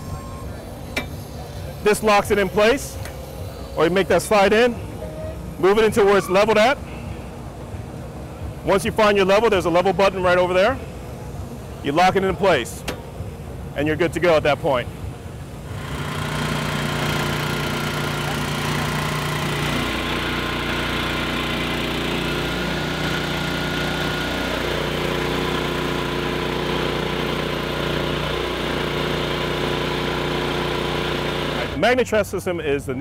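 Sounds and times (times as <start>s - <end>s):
concrete floor grinder running: 15.7s - 31.8s.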